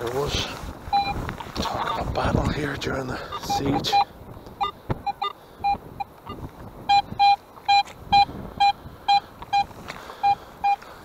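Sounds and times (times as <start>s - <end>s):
metal detector beeping: 0.9s - 2.2s, 3.2s - 10.8s.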